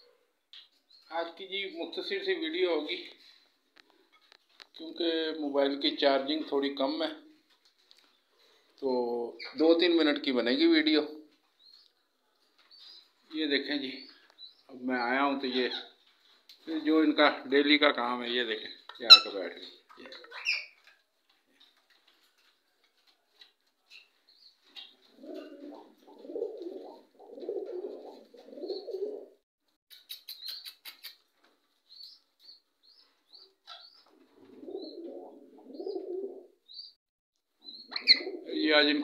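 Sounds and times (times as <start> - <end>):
pigeons cooing: 24.8 - 29.4, 33.8 - 36.6, 37.7 - 38.6
high bird chirps: 29.9 - 31.2, 31.9 - 34.1.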